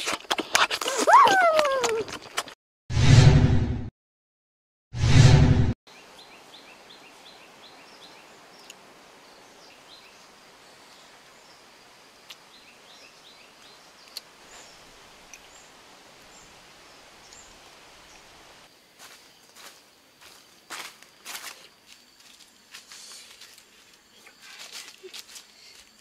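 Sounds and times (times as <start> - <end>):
small birds chirping: 5.9 - 18.3
steady hiss: 6.0 - 26.0.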